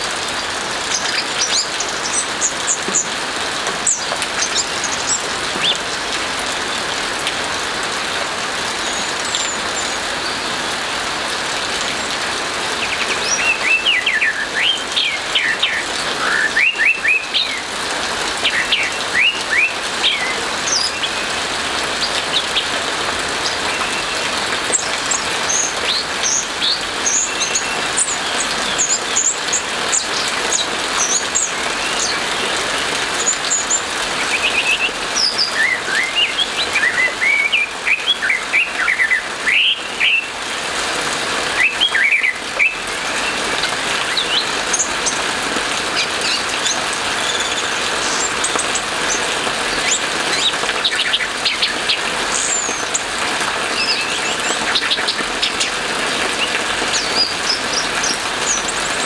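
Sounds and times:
hiss of rain: 0.0 - 59.0
thrush singing whistled phrases: 12.8 - 17.7, 18.4 - 21.2, 33.4 - 40.3, 41.6 - 43.4.

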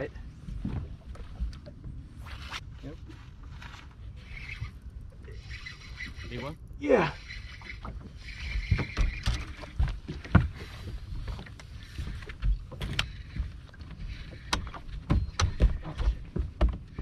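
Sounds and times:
knocks and thumps on boat deck: 0.4 - 1.5, 8.7 - 17.0.

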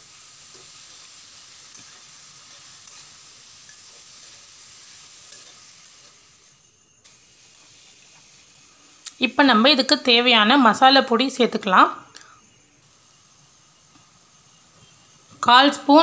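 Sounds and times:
food sizzling in a pan: 0.0 - 16.0
metal spatula scraping pan: 5.1 - 6.2.

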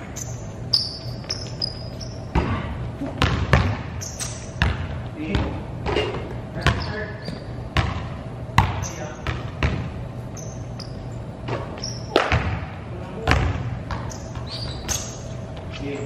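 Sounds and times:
short high squeaks: 0.2 - 2.3, 4.0 - 4.5, 10.3 - 11.1, 11.8 - 12.1, 14.1 - 15.3
basketball bouncing on hardwood floor: 2.3 - 9.9, 12.1 - 15.0.

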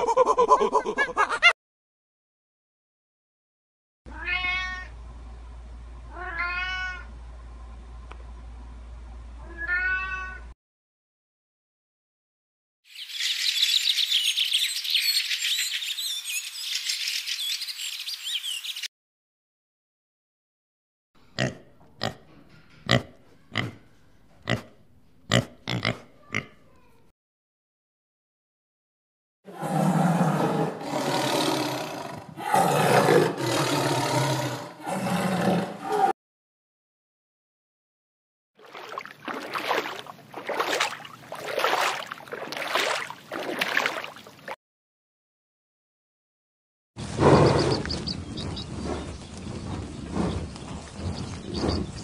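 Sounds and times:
water sloshing and splashing: 38.6 - 44.6.

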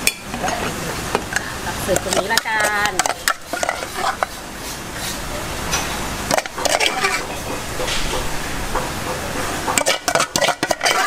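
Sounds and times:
steady background hiss: 0.0 - 11.0
metal spoon scraping and clinking: 9.8 - 11.0.

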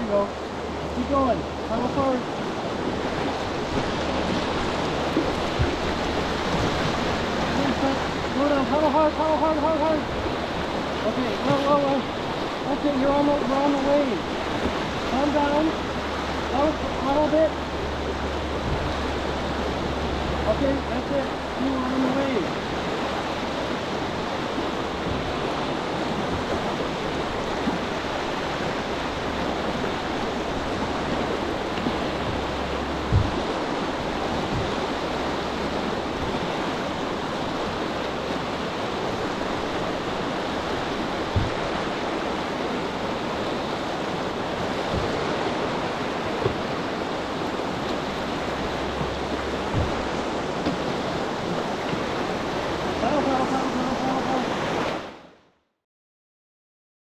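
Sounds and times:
whitewater rushing: 0.0 - 55.2
low thumps: 3.5 - 9.3, 15.8 - 20.9, 29.1 - 36.5, 41.0 - 41.9, 44.3 - 52.8.

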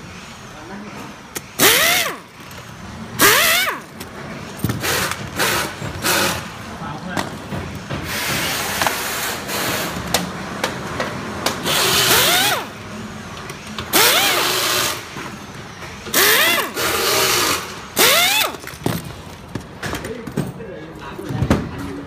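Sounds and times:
pneumatic screwdriver whining: 1.6 - 6.5, 11.6 - 12.8, 13.9 - 15.2, 16.1 - 19.1.

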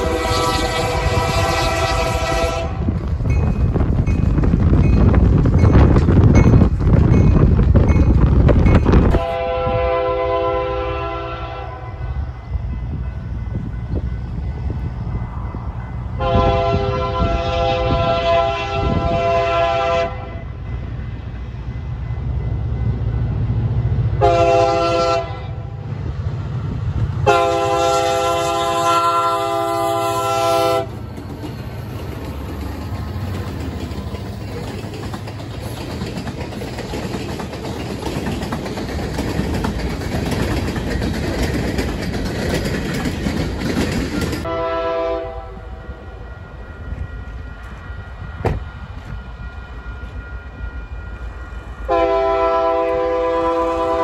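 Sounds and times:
locomotive air horn: 0.0 - 3.0, 9.1 - 12.0, 16.2 - 20.5, 24.2 - 25.8, 27.2 - 31.0, 44.4 - 46.2, 51.9 - 54.0
freight train rumbling on rails: 0.0 - 54.0.

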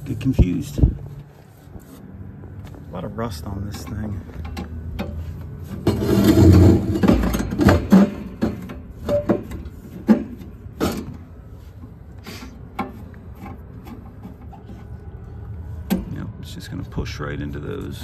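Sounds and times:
clicks and knocks on metal: 5.8 - 11.2.

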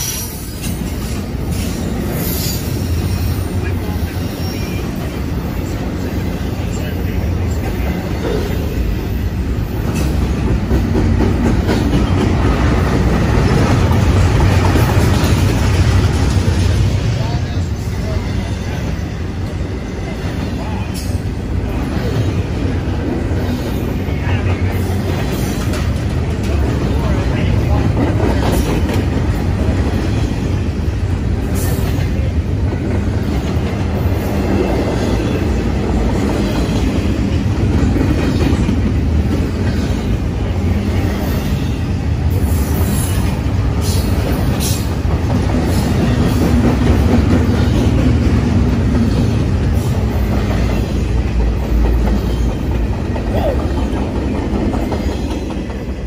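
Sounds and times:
high-pitched train squeals: 0.0 - 8.8
freight train rumbling past: 0.0 - 56.0.

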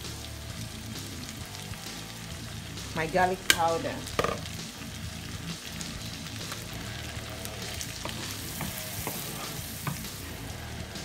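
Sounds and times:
food sizzling in a frying pan: 0.0 - 11.0
wooden spatula stirring: 7.7 - 10.2.

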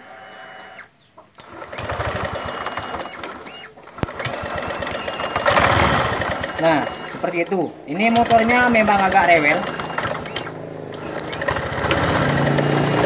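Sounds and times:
scooter engine running: 1.4 - 13.0
cam chain rattling clatter: 4.0 - 13.0.

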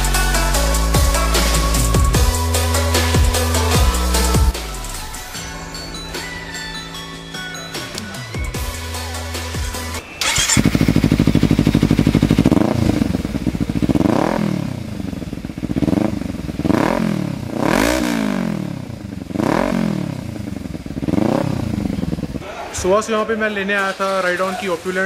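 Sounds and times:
electric starter: 10.2 - 14.3
motorcycle engine revving: 10.2 - 22.4.

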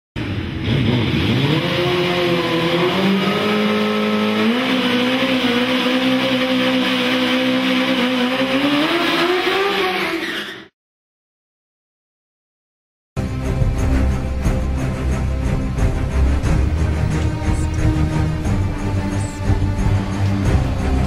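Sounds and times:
motorcycle engine revving high: 0.2 - 10.2, 16.4 - 21.0
spinning tyre hissing and squealing: 1.1 - 10.7.

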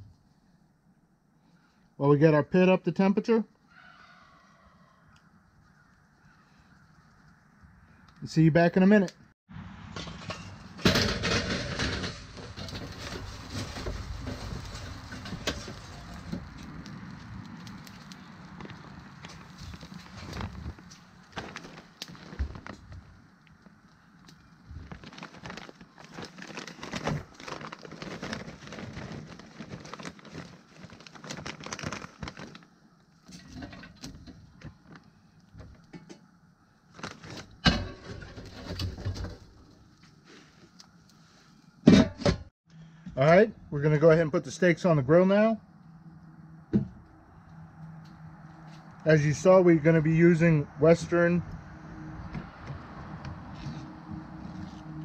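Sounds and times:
charcoal clattering onto grate: 10.0 - 16.6, 37.2 - 39.6
wood chips pattering onto charcoal: 11.0 - 36.0
paper bag crinkling: 11.2 - 23.2, 24.3 - 32.7, 36.9 - 37.6.

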